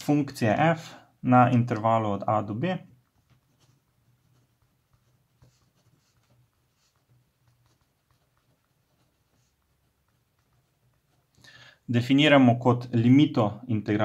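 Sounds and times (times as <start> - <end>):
pen scratching on paper: 3.0 - 11.3.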